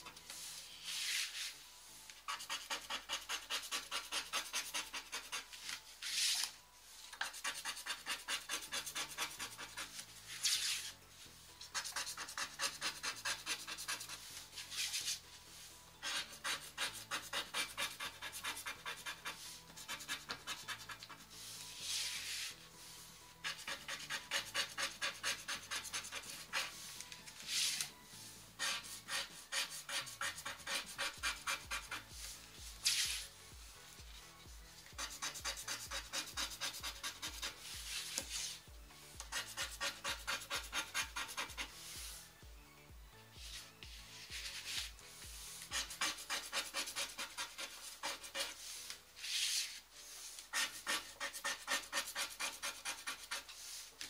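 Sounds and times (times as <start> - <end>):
scratch card rasping: 2.3 - 6.5, 7.2 - 10.9, 11.6 - 15.2, 16.0 - 22.6, 23.4 - 27.9, 28.6 - 33.3, 34.9 - 38.6, 39.2 - 42.0, 45.6 - 54.0.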